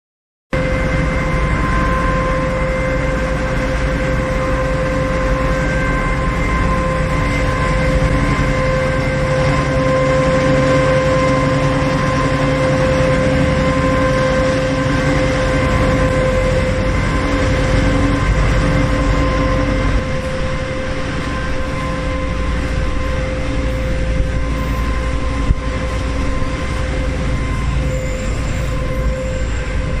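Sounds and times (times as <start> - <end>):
conveyors rumbling: 0.6 - 30.0
electric motor hum with whine: 0.6 - 30.0.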